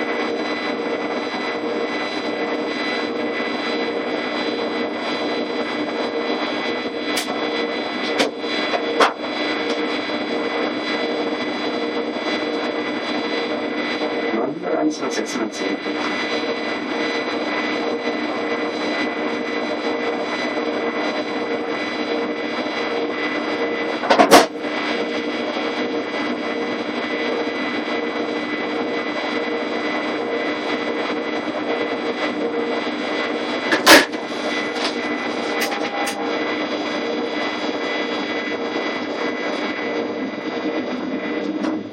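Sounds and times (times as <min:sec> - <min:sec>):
electric train equipment hum: 0:00.0 - 0:41.9
steady tones: 0:34.2 - 0:37.9.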